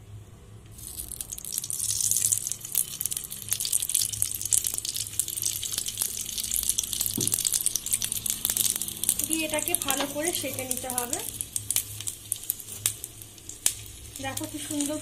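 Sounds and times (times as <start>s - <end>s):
oil sizzling on a hot griddle: 0.7s - 15.0s.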